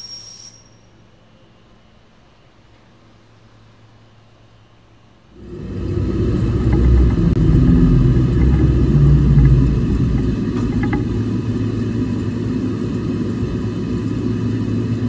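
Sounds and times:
machine low rumble: 5.4s - 15.0s.

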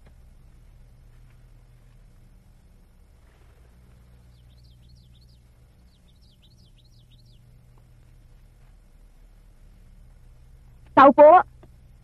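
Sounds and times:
low hum: 0.0s - 12.0s
small bird chirping: 4.1s - 7.6s.

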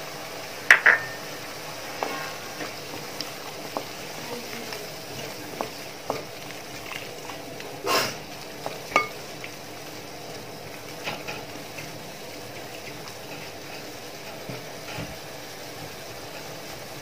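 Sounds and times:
faint sizzle: 0.0s - 17.0s
spoon clinking against pot: 8.9s - 9.2s.

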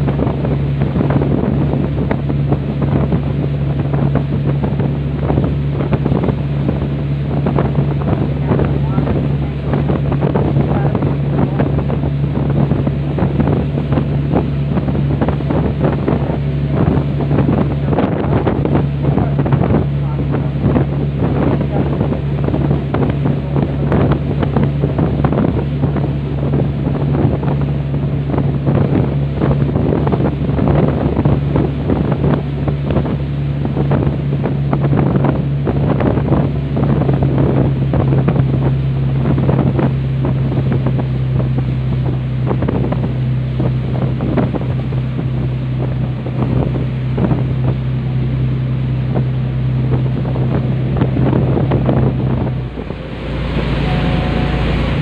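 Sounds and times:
rush of boat wake: 0.0s - 55.0s
wind buffeting microphone: 0.0s - 55.0s
diesel engines droning: 50.6s - 55.0s.

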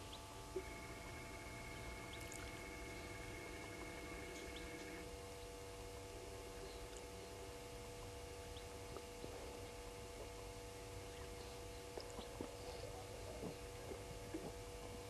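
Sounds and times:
distant bird chirps: 0.0s - 5.5s
steady hum: 0.0s - 15.0s.

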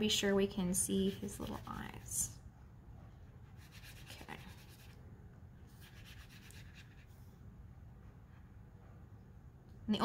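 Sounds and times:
brush stroking wet paint on paper: 0.7s - 2.3s, 3.0s - 5.0s, 5.6s - 9.0s.

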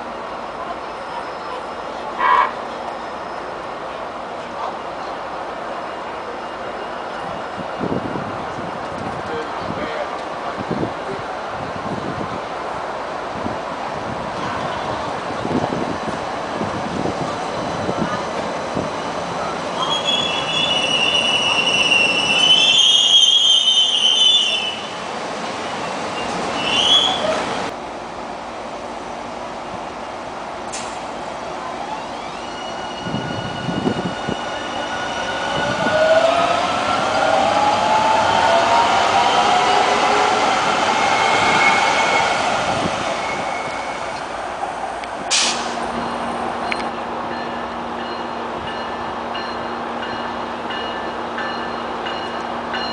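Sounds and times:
rumble of train cars: 0.0s - 52.9s
train wheels squealing on rails: 0.3s - 3.8s, 4.5s - 8.9s, 17.1s - 25.0s, 25.6s - 27.7s, 31.8s - 44.3s
short hiss: 45.3s - 45.9s.

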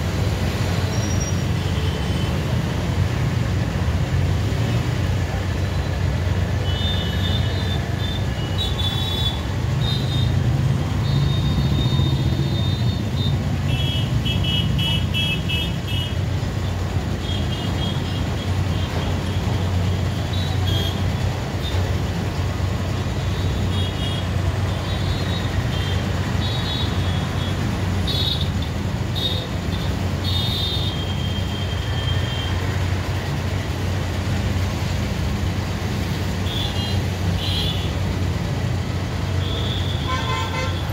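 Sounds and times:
road traffic: 0.0s - 40.9s
horn honks: 39.4s - 40.9s.

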